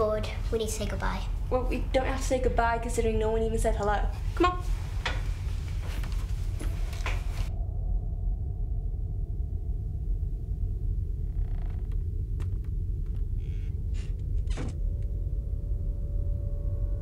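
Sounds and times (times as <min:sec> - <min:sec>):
low rumbling drone: 0:00.0 - 0:17.0
faint clicks and creaks: 0:04.9 - 0:07.5, 0:11.0 - 0:15.2.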